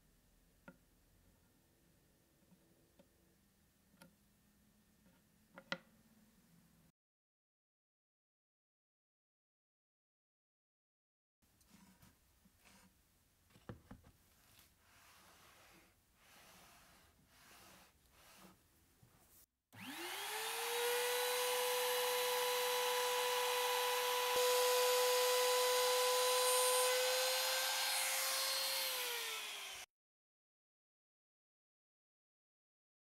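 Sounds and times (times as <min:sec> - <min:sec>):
trim router motor whine: 0:19.8 - 0:29.8.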